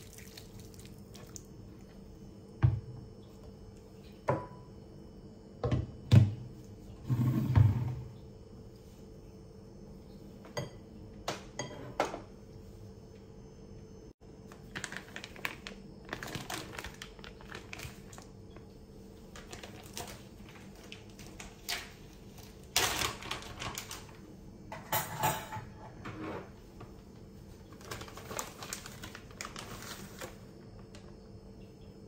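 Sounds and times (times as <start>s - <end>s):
plastic bag crinkling: 14.5s - 18.4s, 19.3s - 24.2s, 27.7s - 31.0s.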